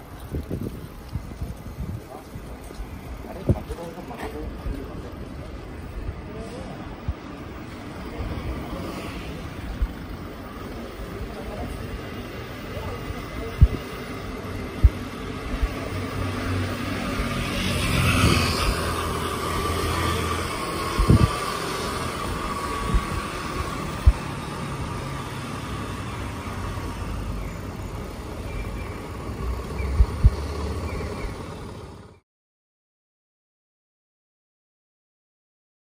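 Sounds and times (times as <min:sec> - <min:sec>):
traffic and road rumble: 0:00.0 - 0:32.2
passing vehicle whine: 0:05.7 - 0:32.2.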